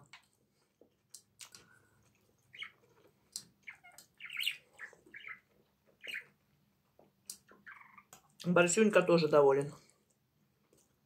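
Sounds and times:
small bird chirping: 2.4s - 8.4s.

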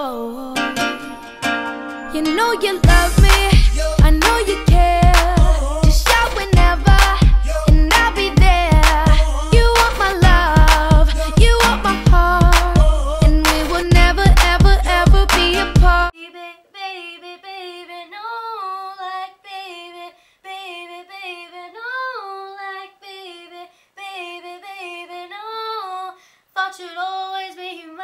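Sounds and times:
person singing unaccompanied: 0.0s - 28.0s
backing music: 0.6s - 16.1s.

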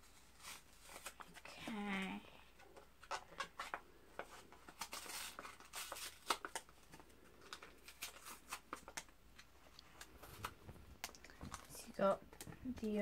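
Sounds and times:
plastic wrapper crinkling and tearing: 3.0s - 13.0s.

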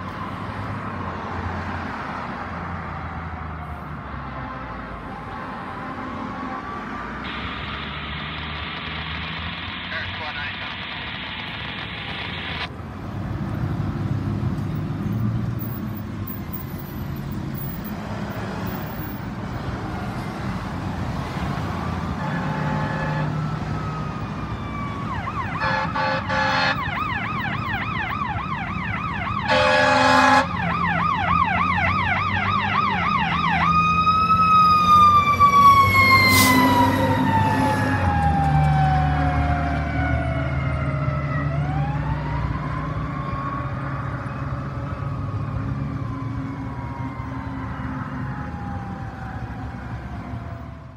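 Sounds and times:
truck engines rumbling: 0.0s - 50.9s
long falling siren tone: 6.3s - 12.7s, 22.2s - 50.9s
fire engine horn blasts: 22.2s - 23.5s, 25.3s - 27.1s, 29.3s - 30.7s
yelp siren: 22.2s - 50.9s.

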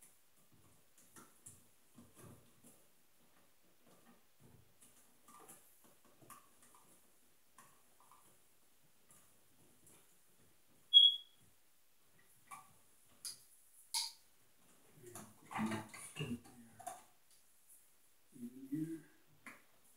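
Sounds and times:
high-pitched squeak: 10.9s - 11.3s.

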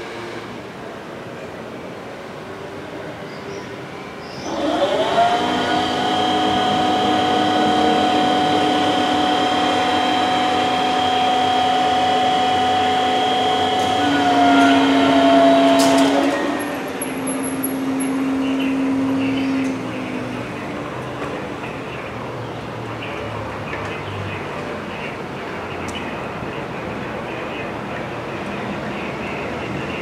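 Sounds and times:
barrier electric motors whining: 4.4s - 22.1s.

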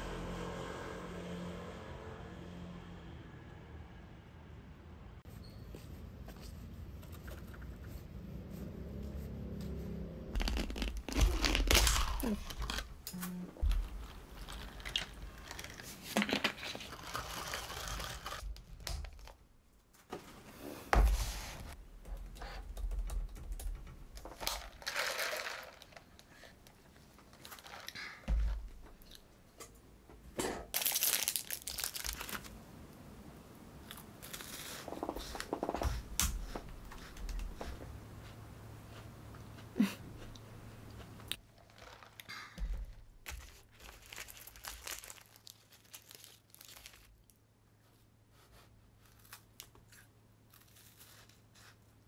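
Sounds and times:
plastic packaging crinkling: 10.4s - 19.4s, 24.2s - 26.5s, 27.2s - 28.2s, 30.7s - 32.6s, 41.4s - 47.4s.

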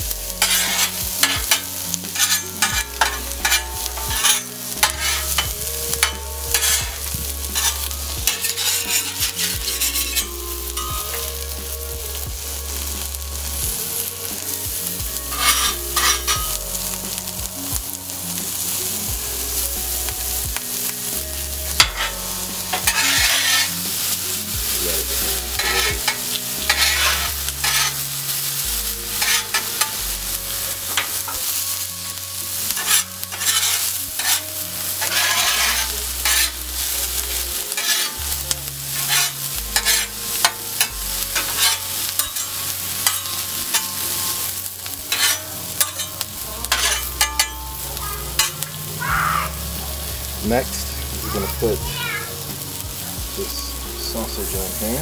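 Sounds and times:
vegetables sizzling on a griddle: 0.0s - 55.0s
metal spatulas scraping on steel: 0.3s - 11.5s, 15.3s - 17.2s, 21.7s - 24.2s, 24.8s - 49.0s.

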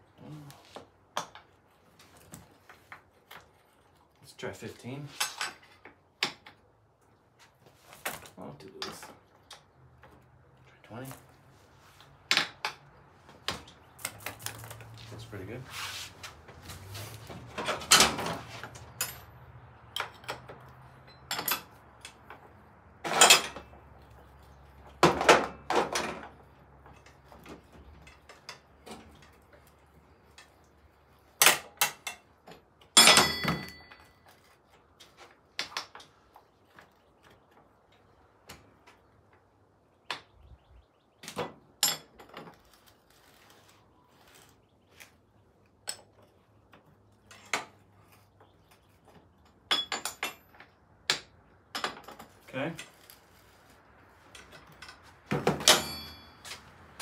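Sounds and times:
hand tools clanking on metal: 5.0s - 6.6s, 8.6s - 9.7s, 17.4s - 23.9s, 31.4s - 34.4s, 41.8s - 42.6s, 49.0s - 53.1s, 54.3s - 57.0s.

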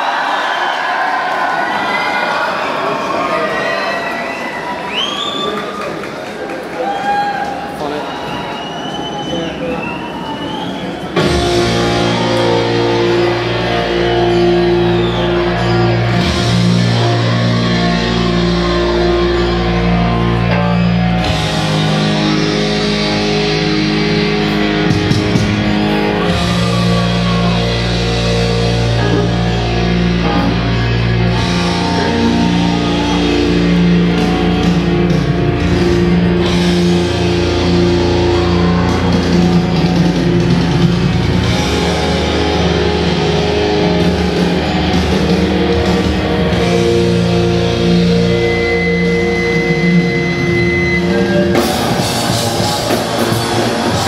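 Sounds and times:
loud rock music: 11.1s - 54.0s.

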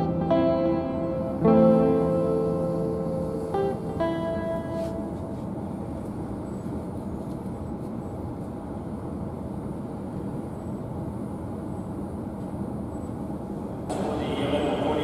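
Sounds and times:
train wheels rumbling on track: 3.3s - 15.0s.

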